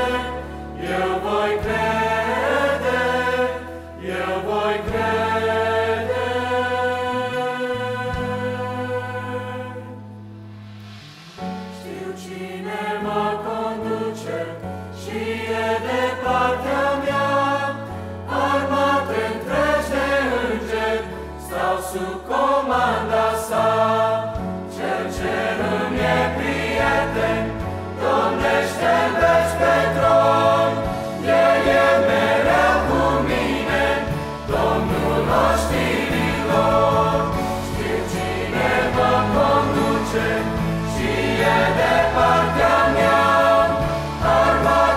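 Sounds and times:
choir singing a hymn: 0:00.0 - 0:44.9
instrumental accompaniment: 0:23.6 - 0:44.9.

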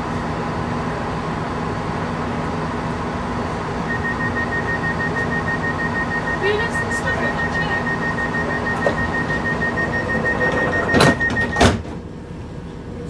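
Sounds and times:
train door warning beeping: 0:03.9 - 0:11.8
sliding doors thumping shut: 0:08.8 - 0:12.1.

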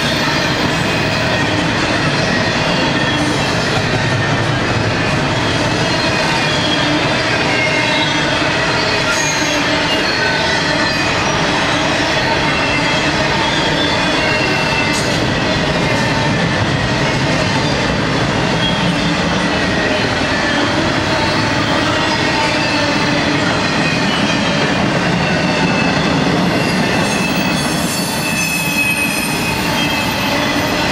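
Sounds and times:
train wheels rumbling on rail: 0:00.0 - 0:30.9
high wheel squeals: 0:05.3 - 0:15.5, 0:18.5 - 0:30.9.

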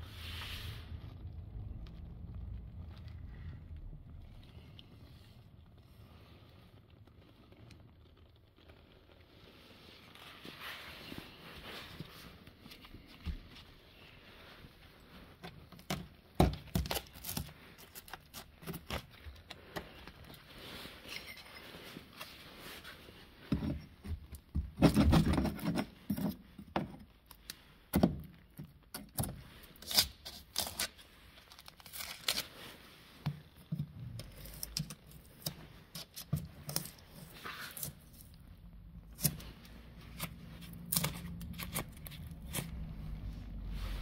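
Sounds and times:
sharp clicks of flakes breaking: 0:29.8 - 0:32.6.

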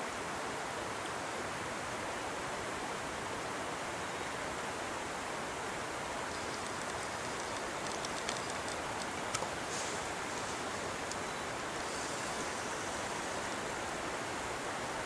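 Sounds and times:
creek rushing: 0:04.5 - 0:15.0
faint light clicks: 0:06.3 - 0:13.2.

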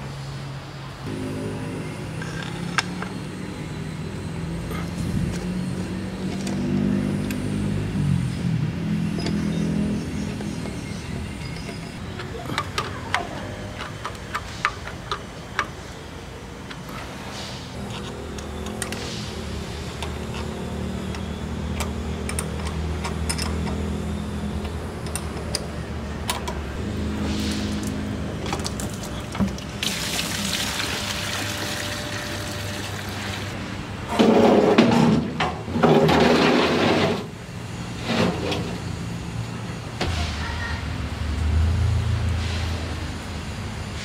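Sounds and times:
liquid splashing into metal drum: 0:29.8 - 0:33.5.

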